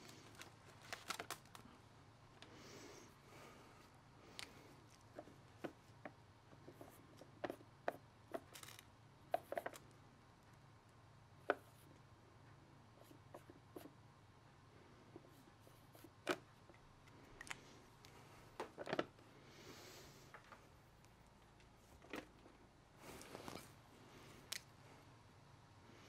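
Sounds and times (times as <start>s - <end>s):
faint low hum: 0.0s - 26.0s.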